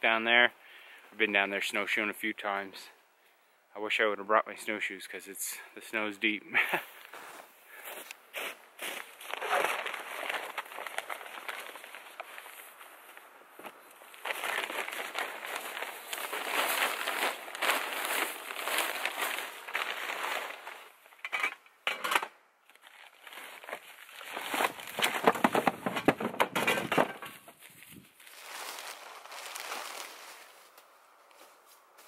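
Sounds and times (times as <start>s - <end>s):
bags and fabric rustling: 9.0s - 21.0s, 27.3s - 30.7s
snow crunching: 14.0s - 21.0s, 27.7s - 31.8s.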